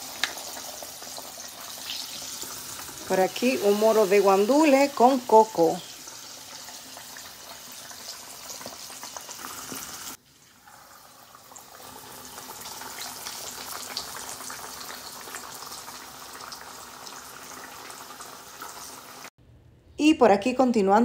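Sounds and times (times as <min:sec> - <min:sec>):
fish frying in hot oil: 0:00.0 - 0:19.3.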